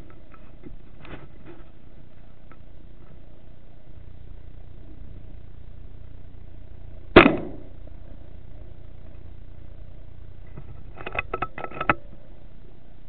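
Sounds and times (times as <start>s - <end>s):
air rifle shot: 7.2s - 7.7s.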